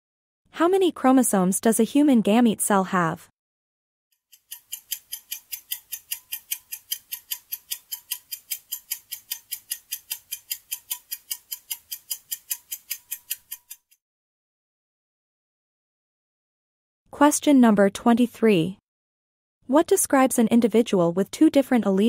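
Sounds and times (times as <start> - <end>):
countdown timer ticking: 4.4 - 13.9.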